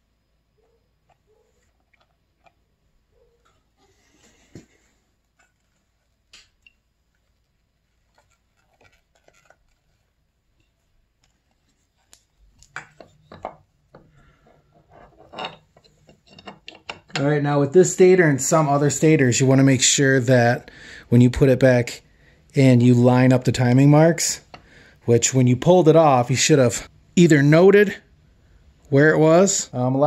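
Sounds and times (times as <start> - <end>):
knocks and scrapes: 12.7 - 17.3.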